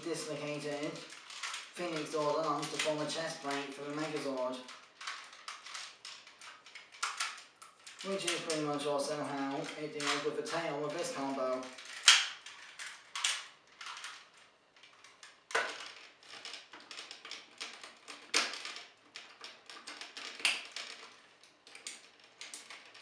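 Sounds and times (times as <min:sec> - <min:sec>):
plastic toy clicks and rattles: 0:00.0 - 0:23.0
plastic toy snaps: 0:12.0 - 0:12.4.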